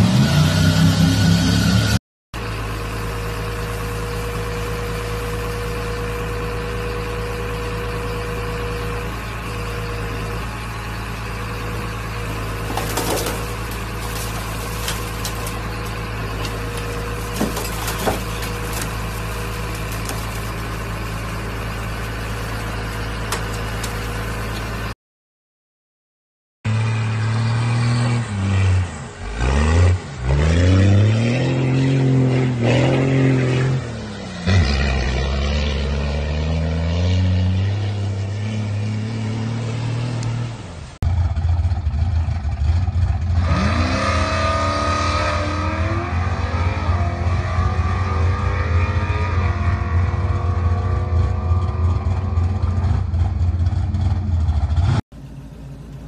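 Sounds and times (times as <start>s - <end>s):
heavy machine engine running: 0.0s - 25.0s
truck engine revving in mud: 0.0s - 25.0s, 26.7s - 41.1s, 42.6s - 55.0s
metal crushing and cracking: 12.5s - 21.0s.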